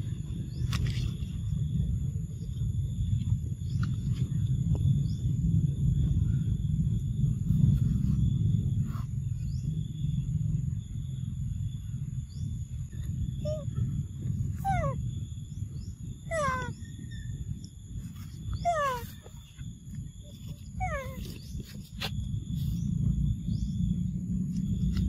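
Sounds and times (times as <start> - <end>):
low rumble: 0.0 - 25.0
macaque squealing: 14.6 - 15.0, 16.3 - 16.8, 18.6 - 19.2, 20.8 - 21.2.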